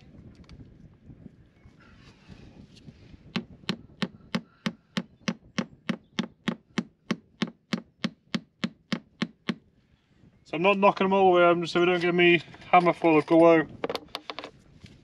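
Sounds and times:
hammer hitting nail into wood: 3.3s - 9.6s.

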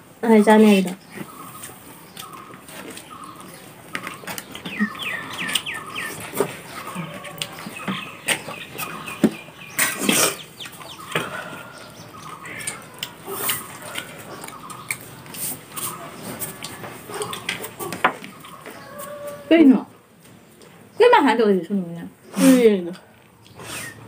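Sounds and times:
people eating by hand: 0.0s - 21.0s
chickens clucking: 0.9s - 19.5s.

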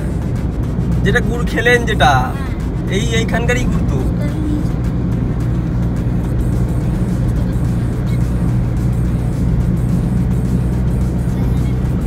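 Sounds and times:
background music: 0.0s - 12.0s
car engine and road noise: 0.0s - 12.0s.

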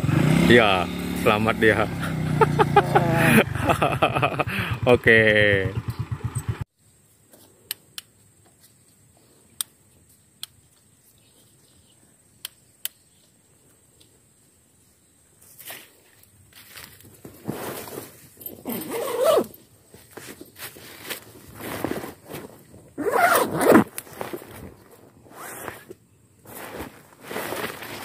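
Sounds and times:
sharp single clicks: 9.6s - 9.8s, 12.4s - 13.1s
clothing and grass rustling: 15.3s - 28.0s.

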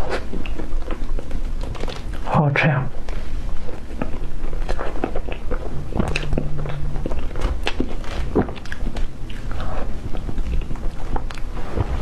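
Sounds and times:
mouth clicks and smacking while chewing: 0.0s - 2.3s.

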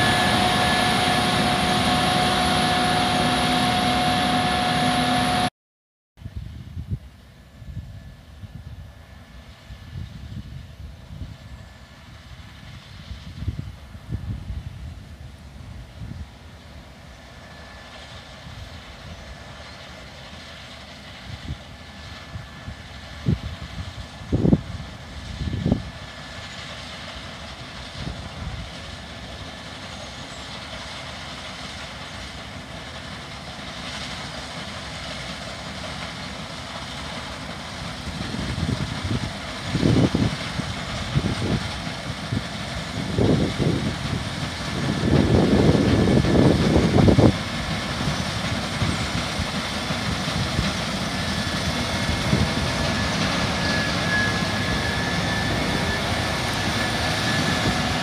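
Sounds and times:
combine harvester running: 0.0s - 5.5s, 6.3s - 58.0s
wind buffeting microphone: 12.2s - 16.6s, 21.2s - 26.2s, 38.0s - 58.0s.

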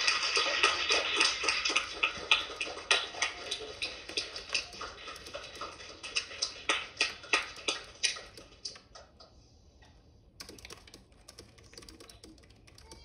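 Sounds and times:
audience clapping: 0.0s - 7.8s.

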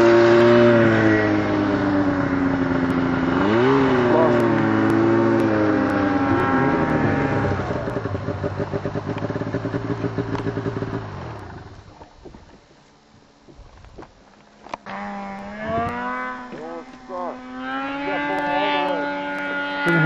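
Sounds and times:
snowmobile engine running hard: 0.0s - 10.9s, 15.4s - 20.0s.

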